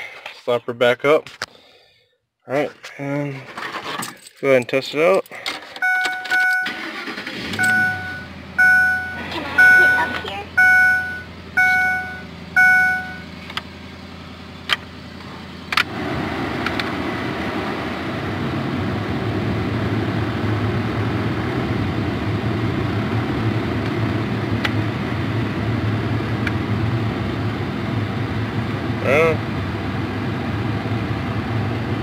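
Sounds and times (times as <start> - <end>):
short electronic beeps: 5.8 - 6.9, 7.5 - 13.3.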